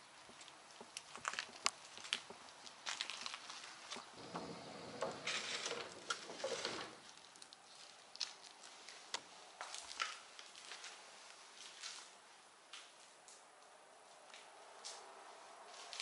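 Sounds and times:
footsteps crunching on gravel: 0.3s - 4.1s.

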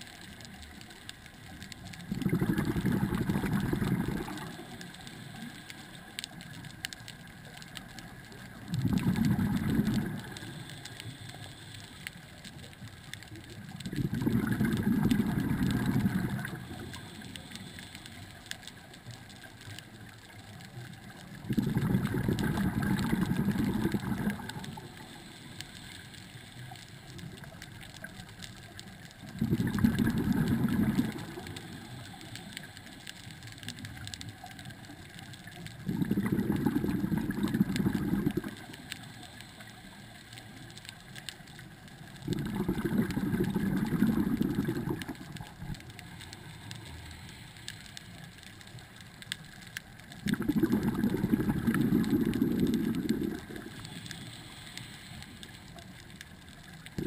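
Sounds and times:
diver exhaling bubbles underwater: 2.0s - 5.0s, 8.6s - 10.6s, 13.8s - 17.2s, 21.4s - 25.2s, 29.3s - 32.2s, 35.8s - 38.8s, 42.2s - 45.9s, 50.2s - 54.4s.

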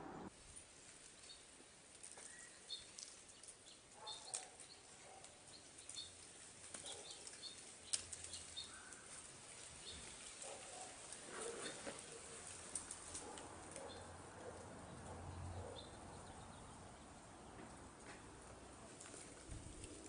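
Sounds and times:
faint bird chirps: 2.1s - 4.9s.

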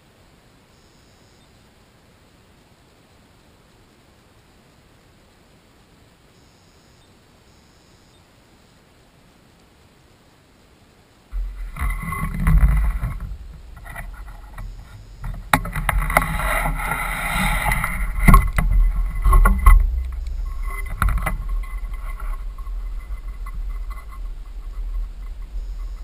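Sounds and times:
sharp clicks and knocks: 11.4s - 26.0s.

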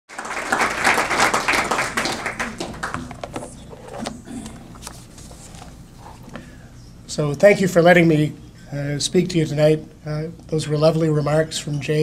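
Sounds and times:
audience applauding: 0.1s - 3.2s.

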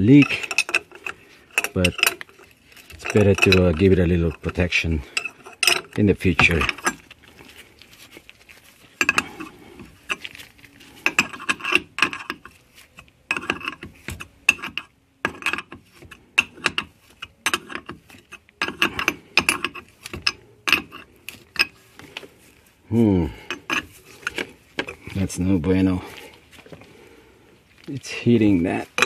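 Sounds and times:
steel wrench clicking: 0.0s - 4.6s.

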